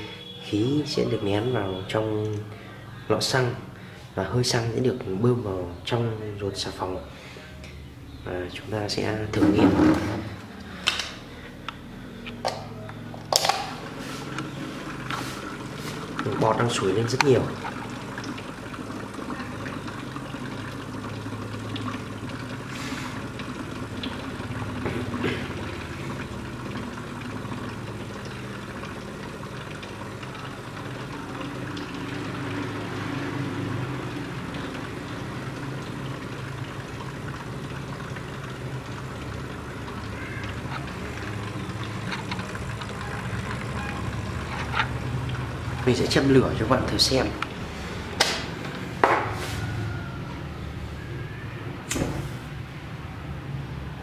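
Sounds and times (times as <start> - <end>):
air compressor humming: 9.4 - 19.1.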